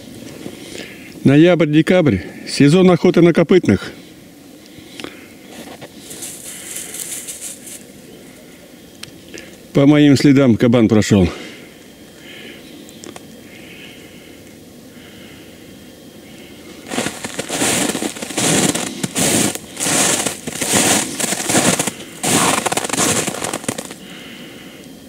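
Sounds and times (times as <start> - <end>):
footsteps crunching in snow: 5.5 - 7.8, 16.8 - 24.0.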